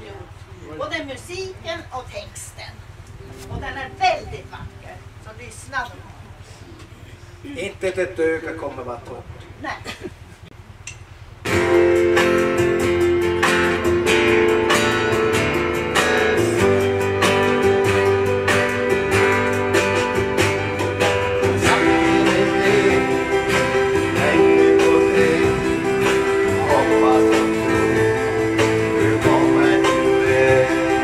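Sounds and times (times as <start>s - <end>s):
acoustic guitars strumming: 3.2s - 6.0s, 11.4s - 31.0s.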